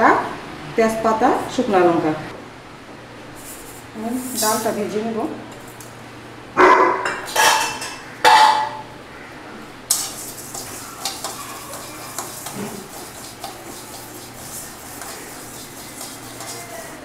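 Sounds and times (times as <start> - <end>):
dog barking: 6.6 - 7.1
spatula stirring lentils in metal pan: 9.9 - 17.0.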